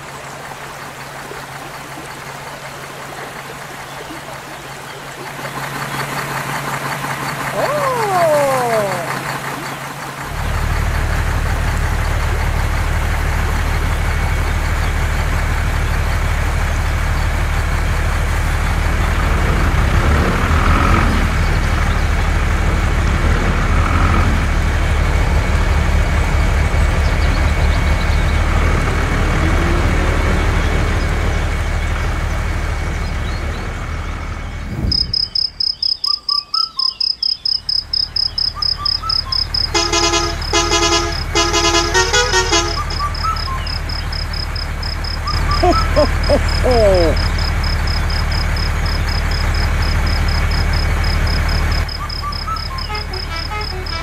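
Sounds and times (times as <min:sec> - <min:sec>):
truck engine running: 0:00.0 - 0:54.0
horn short blasts: 0:39.7 - 0:43.4, 0:52.6 - 0:54.0.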